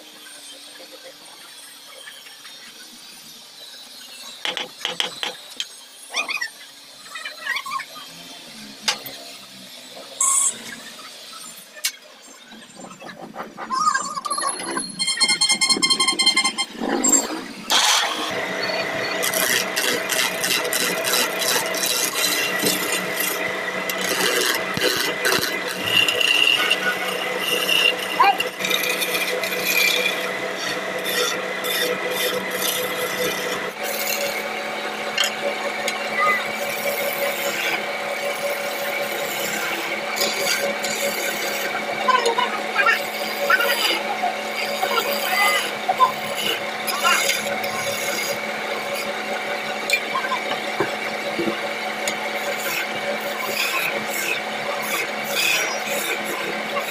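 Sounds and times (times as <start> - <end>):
lathe motor hum: 14.6 - 56.9
wood lathe chisel clatter: 19.2 - 56.9.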